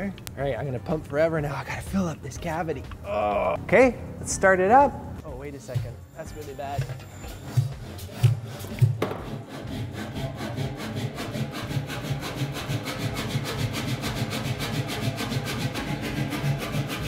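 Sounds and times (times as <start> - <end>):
knock: 8.9 - 9.4.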